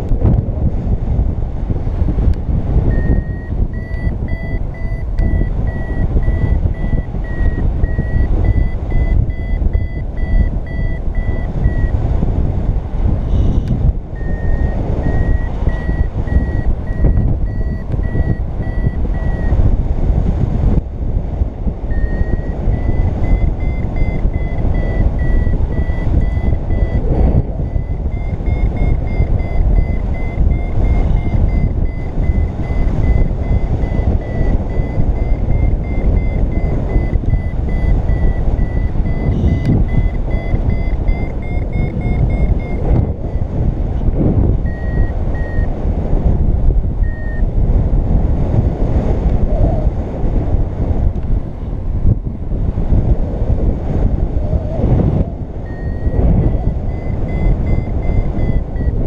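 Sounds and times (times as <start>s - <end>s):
wind rushing over microphone: 0.0s - 59.0s
variometer beeping: 2.8s - 12.1s, 13.5s - 19.8s, 21.7s - 45.8s, 46.9s - 47.5s, 54.7s - 59.0s.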